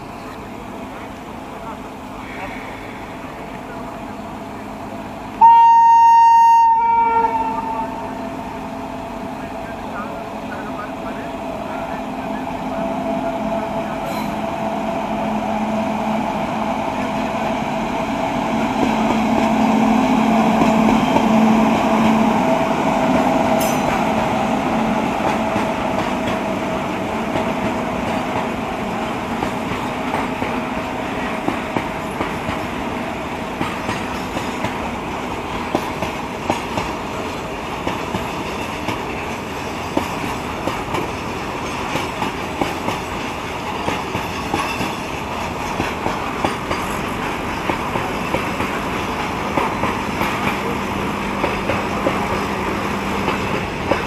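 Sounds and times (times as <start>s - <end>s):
locomotive drone: 0.0s - 54.0s
train wheels clickety-clack: 18.6s - 22.2s, 25.1s - 54.0s.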